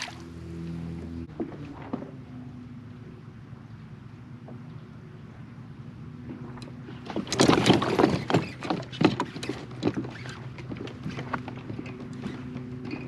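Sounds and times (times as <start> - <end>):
electric trolling motor humming: 0.0 - 7.2.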